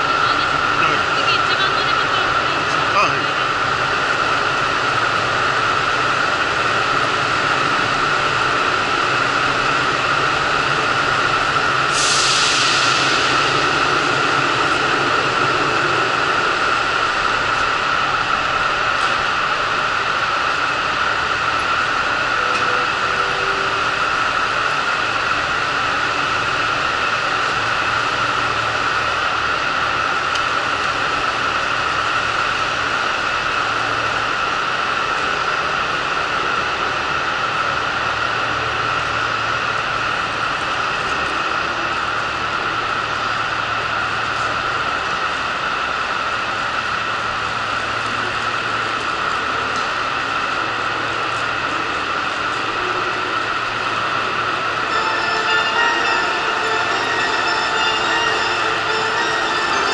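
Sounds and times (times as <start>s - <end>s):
diesel railcar engines idling: 0.0s - 59.9s
compressed air hiss: 11.9s - 13.3s.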